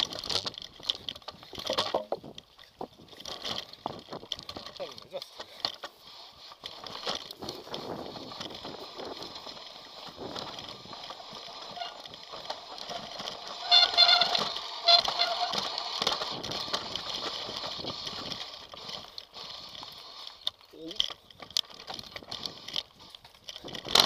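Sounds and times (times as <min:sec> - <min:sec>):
wind noise: 0:00.0 - 0:04.7, 0:06.7 - 0:19.5
mountain bike rattling and rumbling: 0:00.0 - 0:24.0
tyre noise: 0:00.0 - 0:24.0
loud honking squeal: 0:13.6 - 0:15.7.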